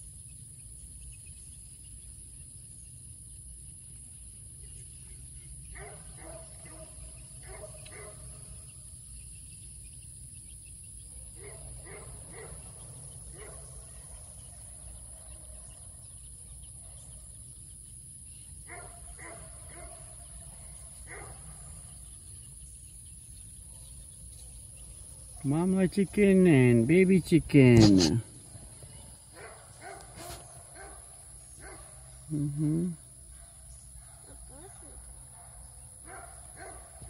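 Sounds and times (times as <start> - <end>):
high insect drone: 15.6 - 37.0.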